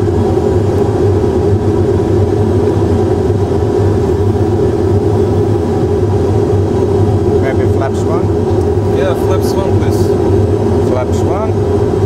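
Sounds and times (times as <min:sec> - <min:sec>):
cockpit engine and airflow drone: 0:00.0 - 0:12.0.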